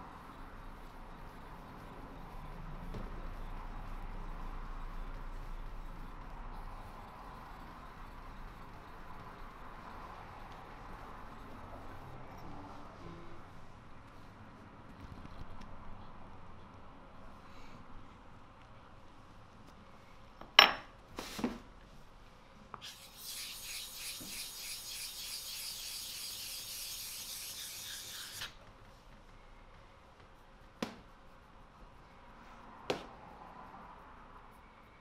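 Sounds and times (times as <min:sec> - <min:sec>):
stone rubbing on wet sharpening stone: 0:22.8 - 0:28.6.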